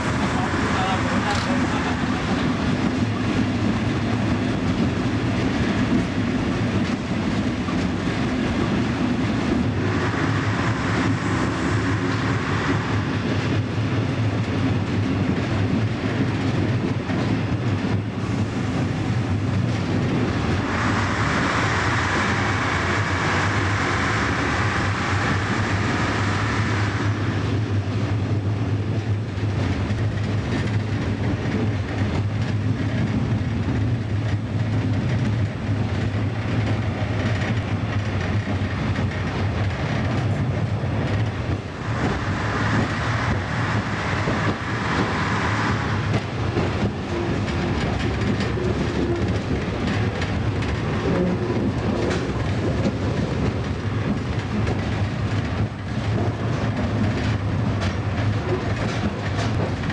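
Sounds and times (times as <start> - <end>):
diesel engine drone: 0.0 - 6.4, 18.3 - 29.3, 37.9 - 59.9
train wheel and rail noise: 0.0 - 59.9.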